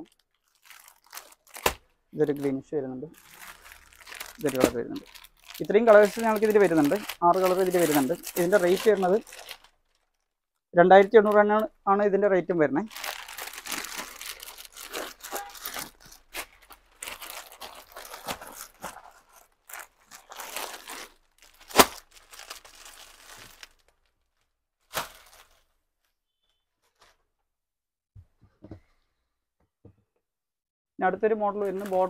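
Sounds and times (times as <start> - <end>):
crinkly packaging rustling: 0.0 - 2.6, 3.2 - 10.4, 12.8 - 25.7, 31.6 - 32.0.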